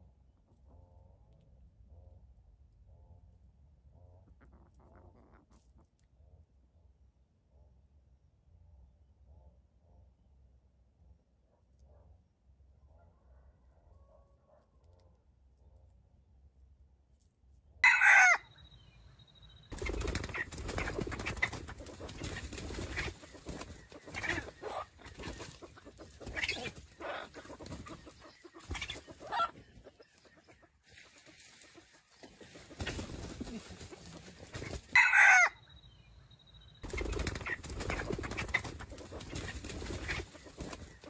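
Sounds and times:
chickens clucking: 4.1s - 6.0s, 19.7s - 35.5s, 36.8s - 41.0s
junglefowl calling: 17.8s - 18.4s, 24.1s - 29.6s, 33.4s - 35.6s.

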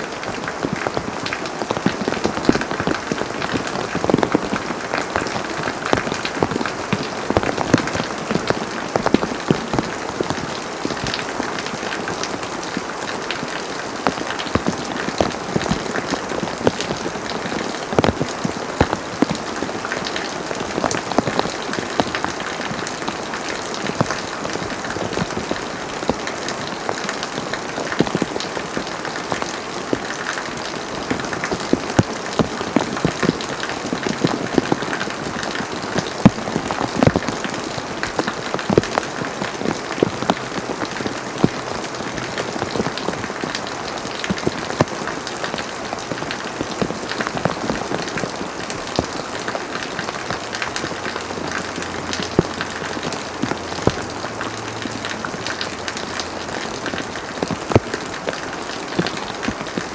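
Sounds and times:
heavy rain on paving and foliage: 0.0s - 59.9s.

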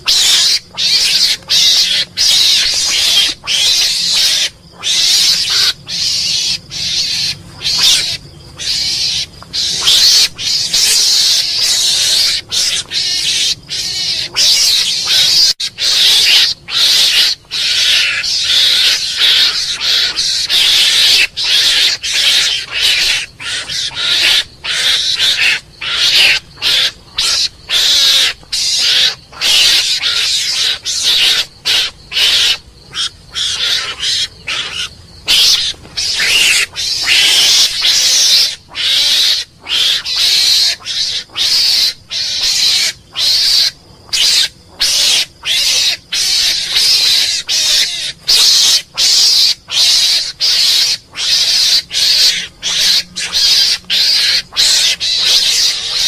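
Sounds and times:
mongoose calls: 0.0s - 56.0s.

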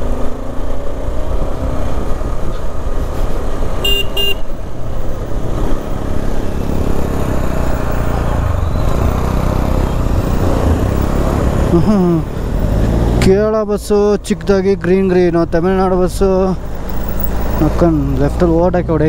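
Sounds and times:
motorcycle engine and wind rumble: 0.0s - 19.0s
vehicle horn tooting: 3.8s - 4.5s.

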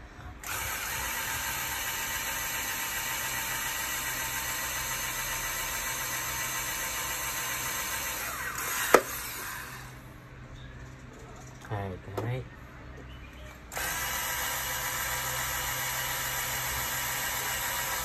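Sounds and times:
cordless drill drilling metal: 0.4s - 10.0s, 13.7s - 18.0s.

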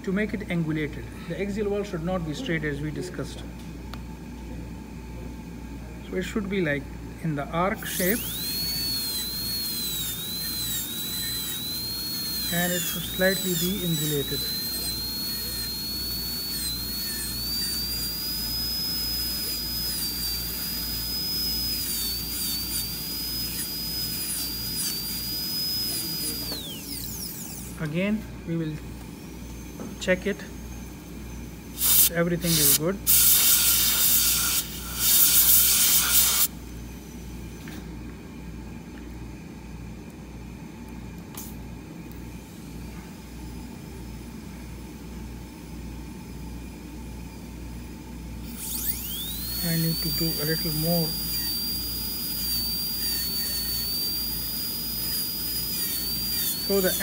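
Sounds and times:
dental drill whining: 7.6s - 37.8s, 48.4s - 57.0s.

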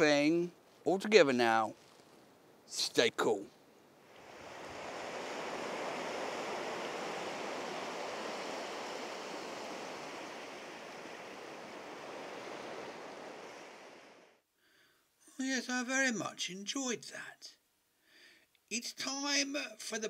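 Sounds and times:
sea waves washing around rocks: 4.1s - 14.4s.

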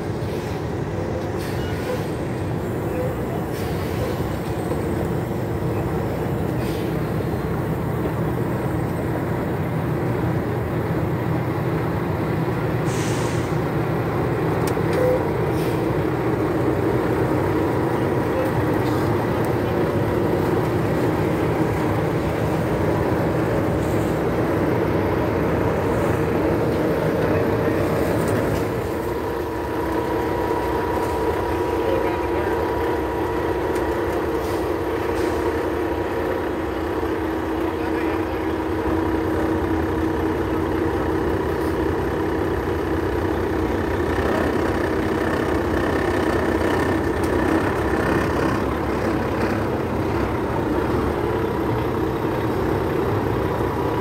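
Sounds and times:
diesel truck engines running: 0.0s - 54.0s
short hiss: 12.8s - 13.6s.

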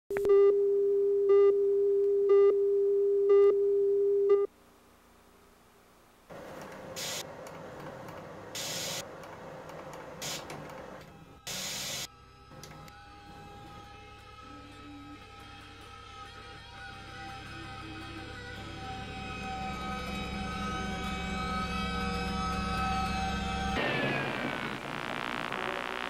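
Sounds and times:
tv static hiss: 4.7s - 7.3s, 8.6s - 9.0s, 10.2s - 10.5s, 11.5s - 12.1s, 23.8s - 26.0s.

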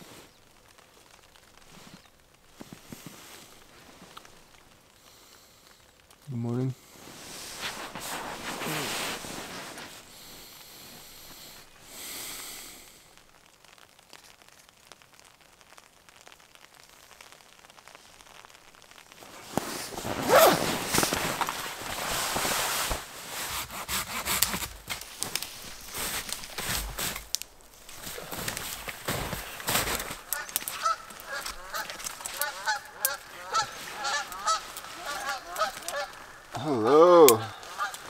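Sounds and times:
sleeping bag and pad rustling: 6.9s - 11.7s, 19.2s - 36.1s.

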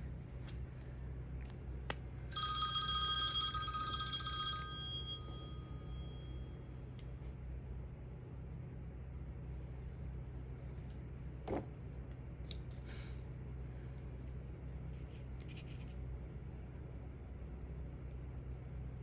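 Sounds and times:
bell ringing in rapid trill: 2.3s - 6.9s.

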